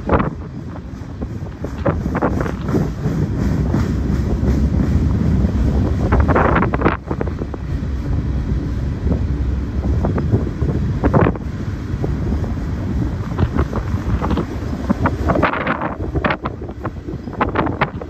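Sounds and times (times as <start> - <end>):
passing train rumble: 0.0 - 18.0
wind buffeting microphone: 0.0 - 18.0.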